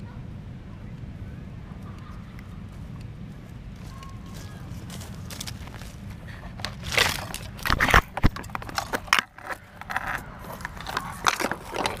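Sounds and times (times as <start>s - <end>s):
scraping on camera: 4.2s - 12.0s
camera handling rustling: 4.3s - 12.0s.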